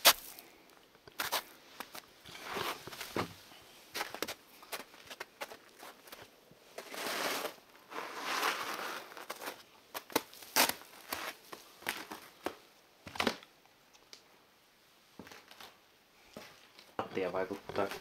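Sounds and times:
footsteps crunching over snow: 0:00.0 - 0:00.5, 0:01.2 - 0:12.5.

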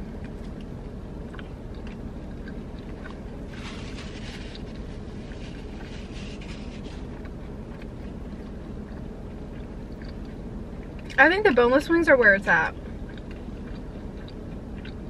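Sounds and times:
chewing clicks: 0:00.0 - 0:03.6, 0:07.0 - 0:11.2, 0:12.7 - 0:15.0
car engine humming: 0:00.0 - 0:15.0
paper napkin rustling: 0:03.5 - 0:07.1.

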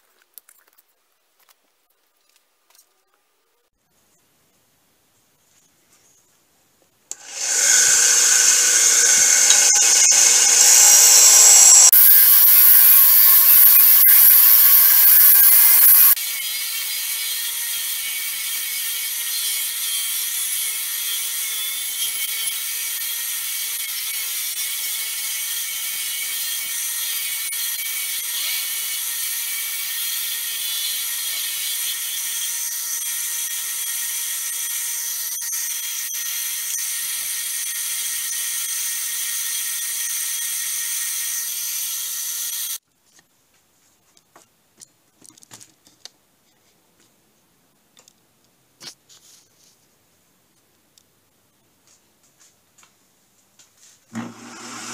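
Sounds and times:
disc sander sanding wood: 0:07.2 - 0:16.2, 0:54.1 - 0:54.9.

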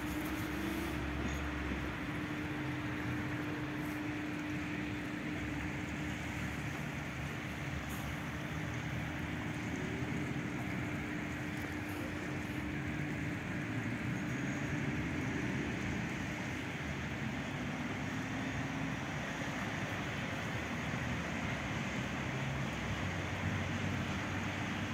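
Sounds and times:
constant low motor hum: 0:00.0 - 0:24.9
water rushing: 0:00.0 - 0:24.9.

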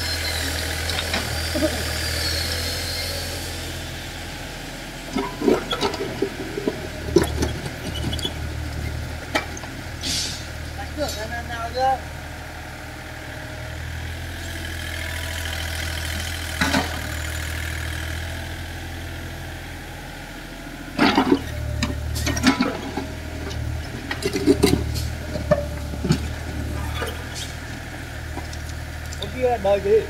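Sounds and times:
excavator engine droning: 0:00.0 - 0:30.0
bucket clanking on rubble: 0:05.1 - 0:08.3.

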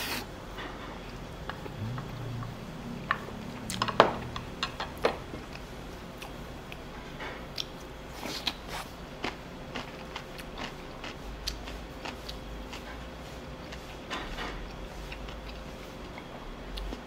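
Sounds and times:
low hum: 0:00.6 - 0:07.1
person chewing food: 0:05.0 - 0:17.0.

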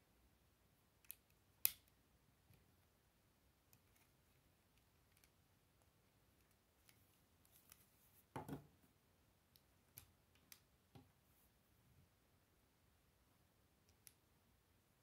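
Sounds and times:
knock on wooden table: 0:08.4 - 0:08.7.

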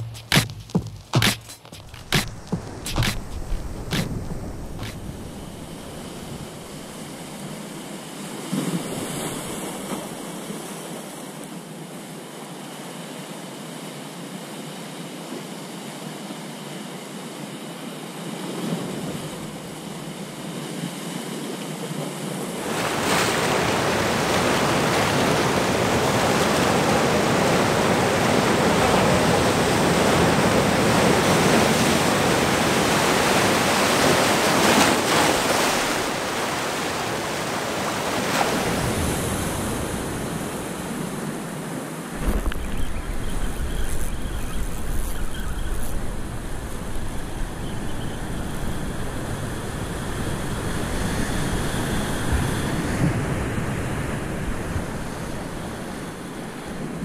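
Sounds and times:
surf breaking on rocks: 0:00.0 - 0:10.9, 0:22.4 - 0:47.6.

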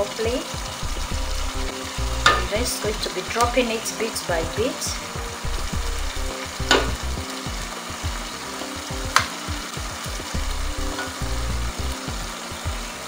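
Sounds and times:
oil sizzling in a pot: 0:00.0 - 0:13.0.

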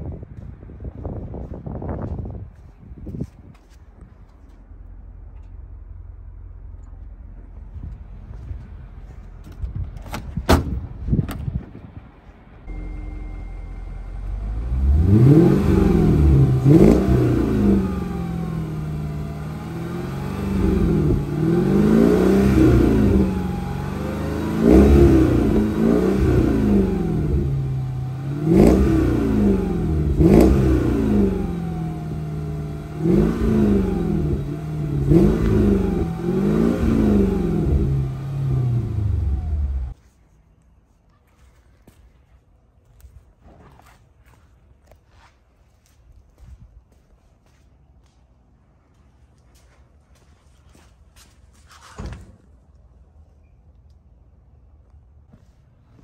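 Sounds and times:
car engine idling and revving: 0:03.6 - 0:10.2, 0:10.8 - 0:40.0.

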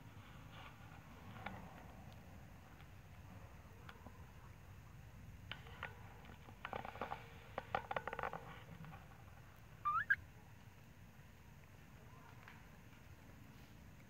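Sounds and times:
animal rising squeak: 0:09.8 - 0:10.2
animal stuttering calls: 0:09.9 - 0:10.2.

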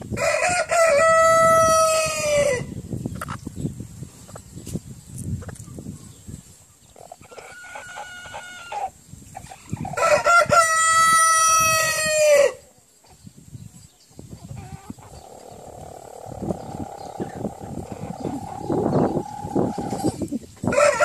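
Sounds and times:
rooster crowing: 0:00.2 - 0:02.6, 0:10.0 - 0:12.6, 0:20.7 - 0:21.0.

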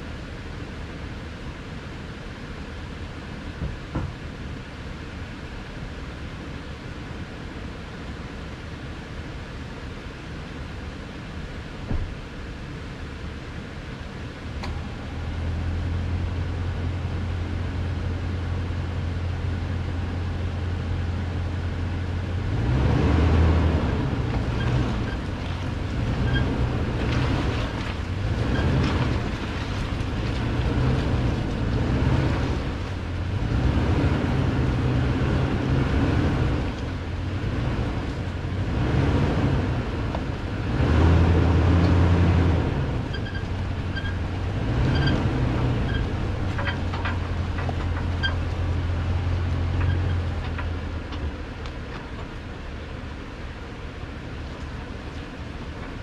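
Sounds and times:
truck engine revving: 0:14.6 - 0:52.4
tires crunching on rock: 0:22.3 - 0:56.0.

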